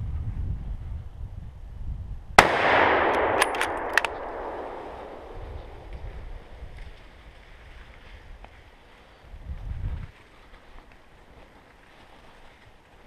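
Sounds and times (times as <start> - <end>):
sharp metallic clicks: 2.4 - 6.3
rifle shot echoing: 2.4 - 6.7.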